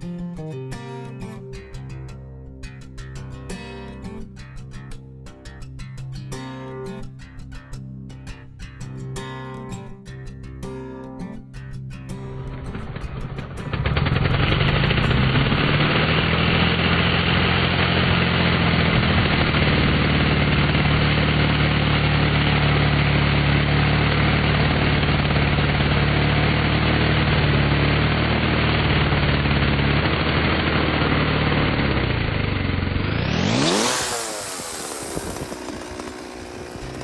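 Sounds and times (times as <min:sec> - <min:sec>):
chainsaw cutting log: 0:12.3 - 0:37.0.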